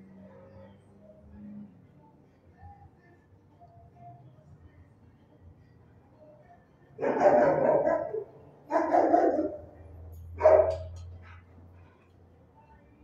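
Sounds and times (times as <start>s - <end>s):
dog barking: 7.0s - 11.4s.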